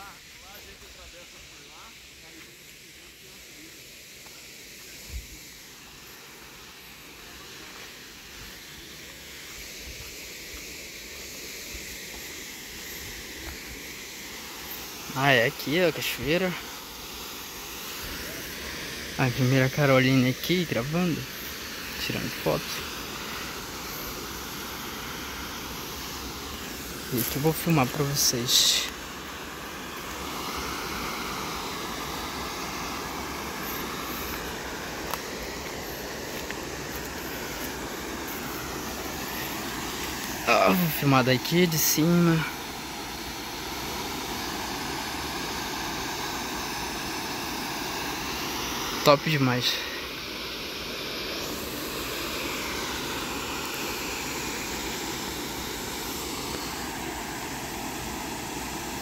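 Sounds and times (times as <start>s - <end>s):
high hiss of outdoor ambience: 0.0s - 59.0s
water rushing over waterfall: 12.2s - 59.0s.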